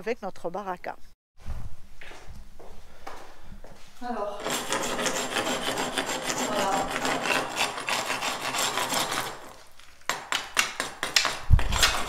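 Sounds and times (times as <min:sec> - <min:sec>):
scraper rasping on cement wall: 0:04.4 - 0:12.0.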